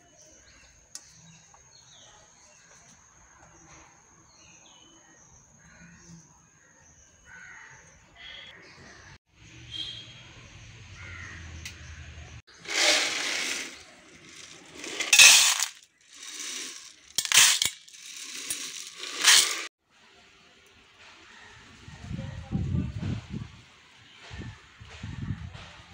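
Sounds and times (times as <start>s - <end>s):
dry peas rattling in metal bowl: 12.5s - 19.7s.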